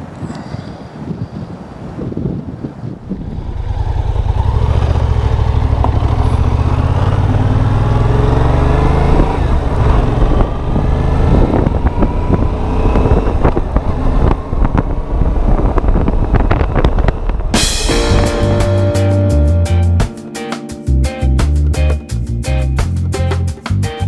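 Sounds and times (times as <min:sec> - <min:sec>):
motorcycle engine accelerating: 0:03.0 - 0:20.1.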